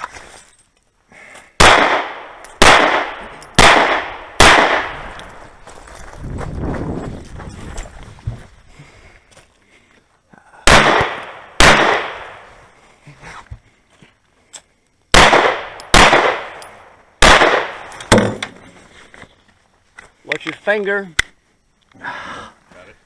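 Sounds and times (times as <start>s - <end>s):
pistol shots echoing outdoors: 1.6s - 5.4s, 10.6s - 12.5s, 15.1s - 18.4s.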